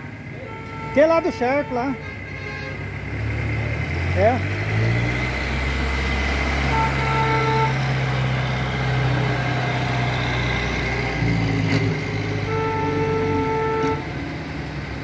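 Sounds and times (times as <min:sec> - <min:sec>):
trucks passing with engines humming: 0:00.0 - 0:15.0
vehicle horn: 0:00.4 - 0:02.8, 0:06.7 - 0:07.9, 0:12.4 - 0:14.1.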